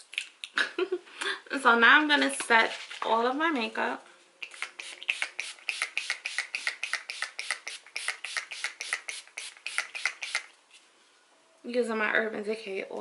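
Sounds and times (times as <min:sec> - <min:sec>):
spray bottle misting: 0:04.4 - 0:10.5.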